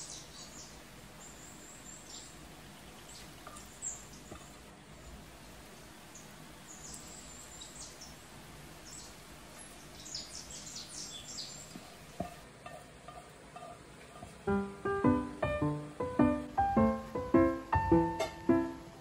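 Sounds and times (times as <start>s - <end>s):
piano music: 14.4s - 19.0s.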